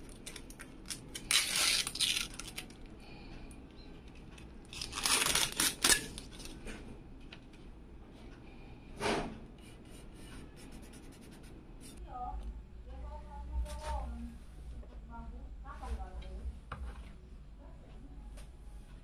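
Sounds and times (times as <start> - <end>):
plastic bag crinkling: 0.0 - 2.9, 4.6 - 6.6.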